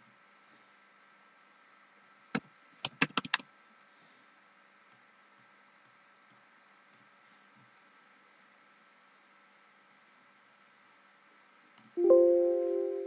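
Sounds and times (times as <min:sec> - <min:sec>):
faint steady hum: 0:00.0 - 0:13.0
keyboard key presses: 0:02.8 - 0:03.4.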